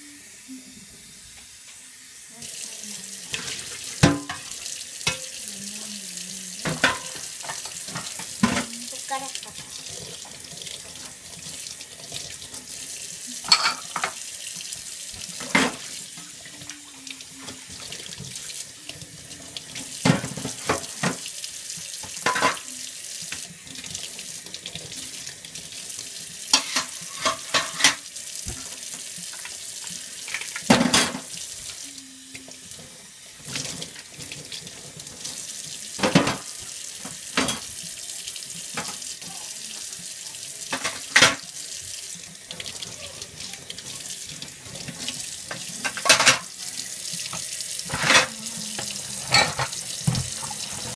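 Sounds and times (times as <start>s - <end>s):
dishes clinking: 3.4s - 5.4s, 6.6s - 8.7s, 13.4s - 14.2s, 22.2s - 22.6s, 26.5s - 28.0s, 30.4s - 31.3s, 37.4s - 37.7s, 45.8s - 46.5s, 47.9s - 50.8s
tap running into sink: 26.5s - 31.4s, 43.7s - 50.9s.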